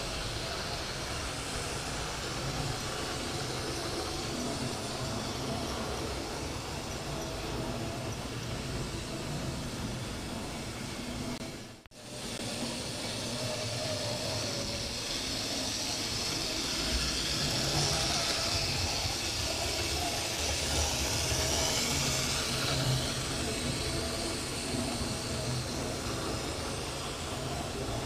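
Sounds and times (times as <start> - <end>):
high hiss: 0.0 - 11.2, 12.0 - 28.0
wheels rumbling on rails: 0.0 - 28.0
model train motor whine: 12.0 - 28.0.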